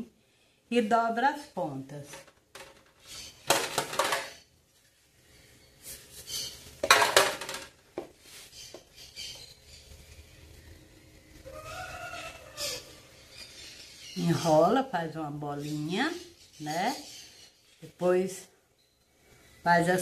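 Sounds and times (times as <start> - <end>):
metal bowls clattering: 3.5 - 4.4.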